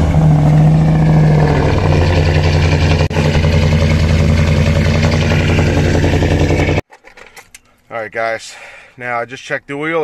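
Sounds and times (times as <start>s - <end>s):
car engine idling: 0.0s - 6.8s.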